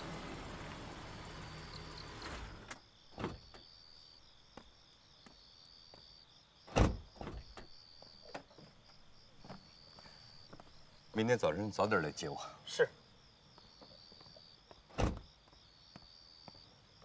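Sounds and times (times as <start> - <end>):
car engine running: 0.0 - 2.7
crickets chirping: 0.0 - 17.0
car door clunk: 6.7 - 7.6.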